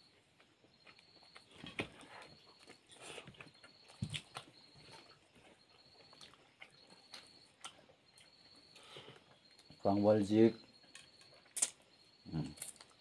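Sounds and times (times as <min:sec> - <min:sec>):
chewing: 0:00.1 - 0:09.8
high insect trill: 0:00.4 - 0:13.0.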